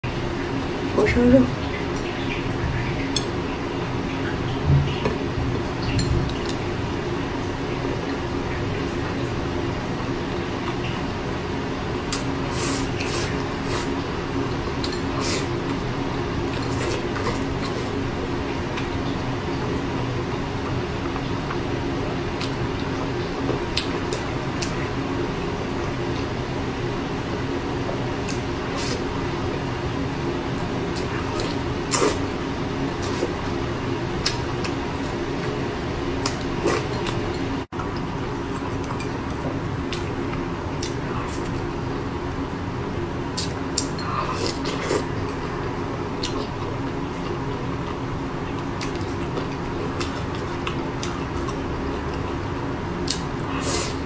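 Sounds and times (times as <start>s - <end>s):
low background hum: 0.0s - 54.0s
wet chewing and mouth smacking: 34.2s - 35.6s, 43.4s - 45.1s, 46.2s - 52.4s.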